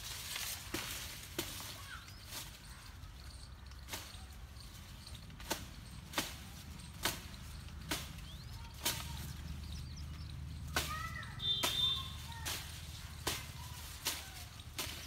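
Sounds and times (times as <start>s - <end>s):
blade chopping tree branches: 0.0s - 2.7s, 3.8s - 15.0s.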